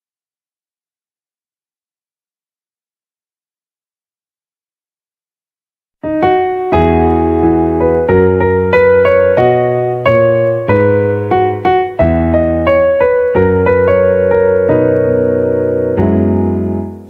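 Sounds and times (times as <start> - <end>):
piano playing slow chords: 6.0 - 17.0.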